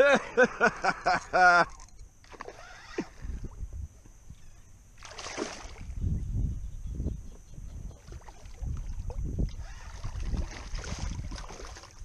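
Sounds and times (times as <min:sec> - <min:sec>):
fish splashing at water surface: 0:05.0 - 0:05.9, 0:09.8 - 0:12.0.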